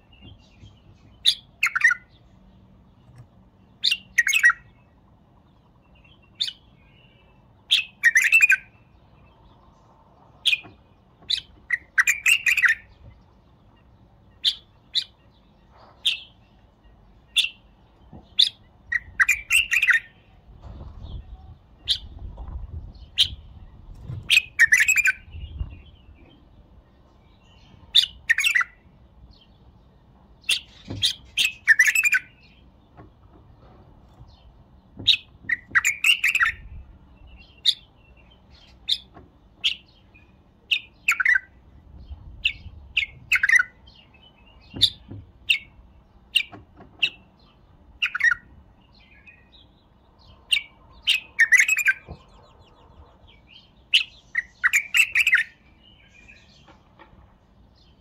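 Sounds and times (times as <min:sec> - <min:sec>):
bird singing whistled phrases: 0:06.4 - 0:08.7, 0:31.4 - 0:32.4, 0:54.0 - 0:55.6.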